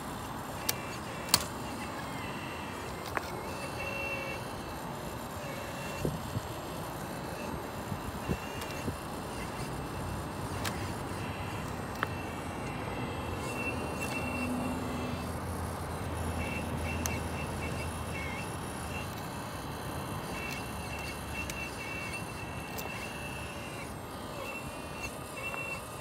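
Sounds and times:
small electric motors whirring: 0:00.0 - 0:26.0
sharp clicks: 0:00.5 - 0:02.0, 0:08.2 - 0:12.8.

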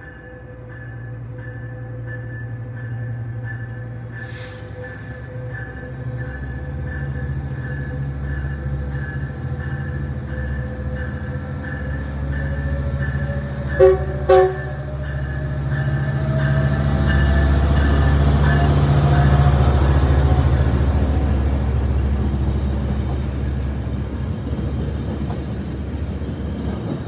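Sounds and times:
diesel locomotive engine: 0:00.0 - 0:27.0
train bell dinging: 0:00.0 - 0:27.0
train rolling past: 0:00.0 - 0:27.0
train horn blasts: 0:13.8 - 0:15.0.

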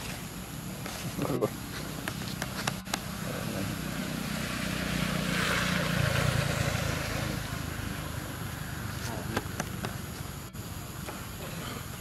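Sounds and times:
vehicle passing by: 0:02.8 - 0:10.2.

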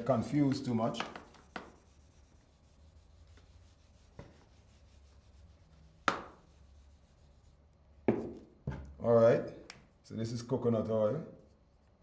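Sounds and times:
eraser rubbing on whiteboard: 0:00.3 - 0:07.6.

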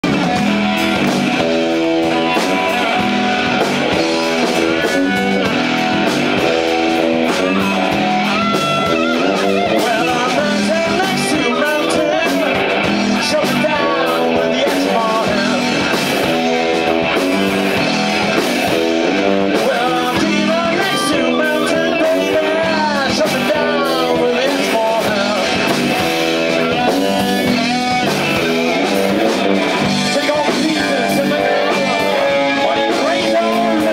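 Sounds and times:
electric guitar: 0:00.0 - 0:33.9
live rock band playing: 0:00.0 - 0:33.9
man singing into a microphone: 0:09.2 - 0:16.0, 0:19.5 - 0:26.0, 0:29.7 - 0:33.9.

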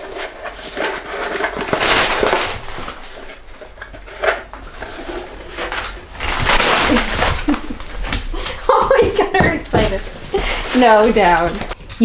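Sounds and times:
plastic helmet rustling: 0:00.0 - 0:11.8.

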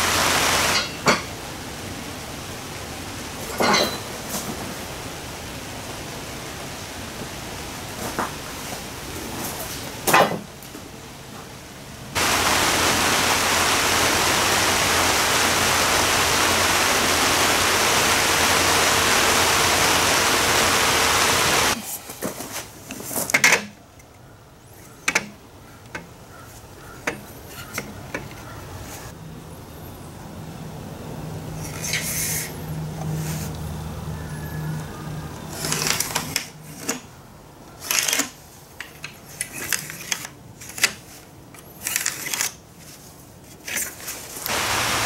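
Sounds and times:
loud rushing hiss: 0:00.0 - 0:01.1, 0:12.2 - 0:21.8, 0:44.5 - 0:45.0.

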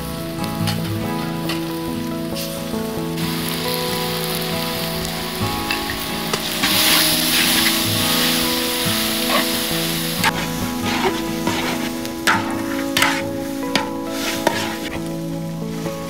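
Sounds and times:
food sizzling in a wok: 0:00.0 - 0:16.0
metal spatula scraping a pan: 0:06.6 - 0:08.5, 0:09.1 - 0:15.2.

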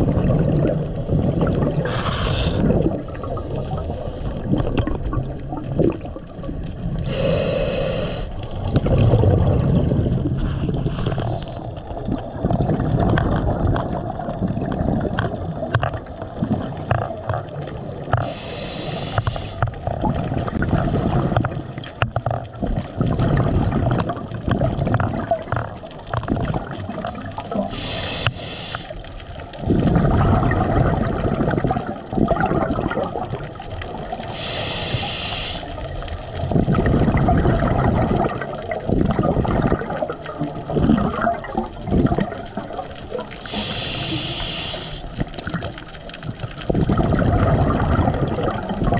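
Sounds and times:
exhaled bubbles rumbling: 0:00.0 - 0:48.9
regulator inhale hiss: 0:01.8 - 0:04.5, 0:07.0 - 0:08.4, 0:18.2 - 0:19.7, 0:27.7 - 0:29.0, 0:34.3 - 0:35.9, 0:43.4 - 0:45.2.

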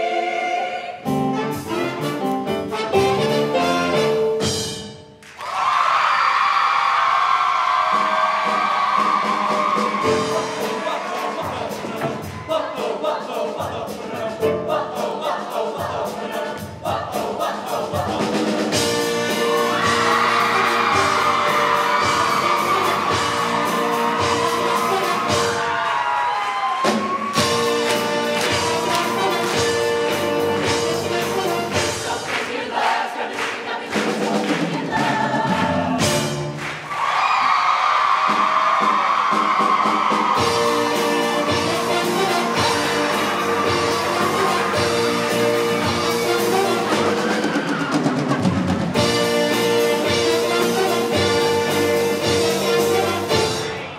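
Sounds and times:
choir singing: 0:00.0 - 0:02.0, 0:07.9 - 0:26.0, 0:27.4 - 0:36.5, 0:40.2 - 0:53.9
drum kit beat: 0:01.0 - 0:05.1, 0:07.8 - 0:25.8, 0:26.8 - 0:36.9, 0:38.1 - 0:53.9
brass horns: 0:01.1 - 0:04.8, 0:18.1 - 0:25.8, 0:27.2 - 0:32.2, 0:40.4 - 0:53.9.

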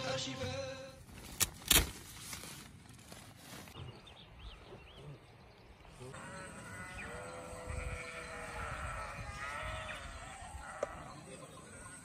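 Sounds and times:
sheep bleating: 0:06.1 - 0:12.0.

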